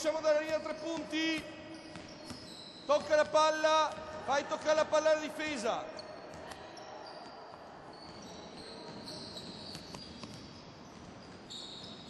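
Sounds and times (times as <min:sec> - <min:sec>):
sneakers squeaking: 0:00.0 - 0:12.0
basketballs bouncing on wooden floor: 0:00.4 - 0:05.0, 0:07.2 - 0:12.0.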